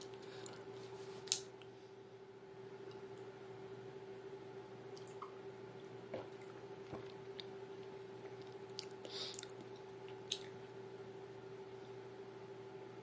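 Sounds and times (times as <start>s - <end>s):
faint hum: 0.0s - 13.0s
person gulping a drink: 6.1s - 10.6s.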